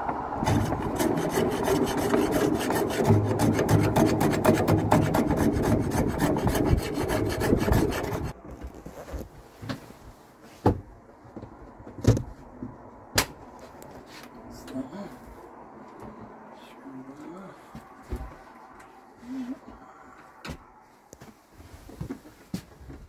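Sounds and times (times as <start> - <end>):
hand plane shaving wood: 0.4 - 8.4.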